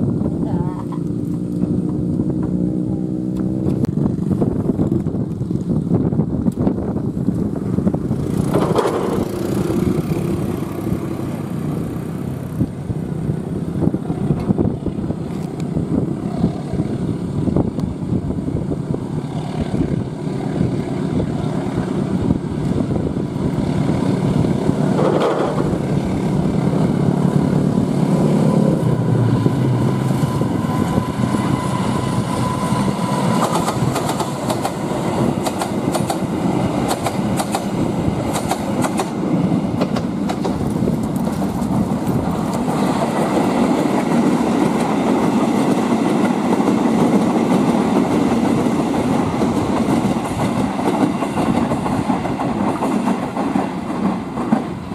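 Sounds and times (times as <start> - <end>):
diesel locomotive rumble: 0.0 - 54.9.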